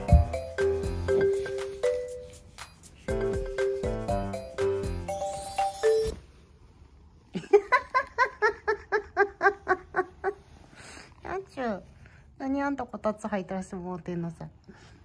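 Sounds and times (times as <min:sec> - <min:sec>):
bright chime jingle: 0:00.0 - 0:06.2.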